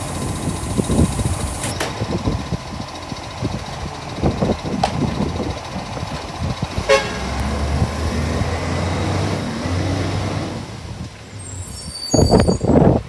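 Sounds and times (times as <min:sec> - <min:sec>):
diesel engine humming: 0:00.0 - 0:13.0
short horn toot: 0:06.9 - 0:07.4.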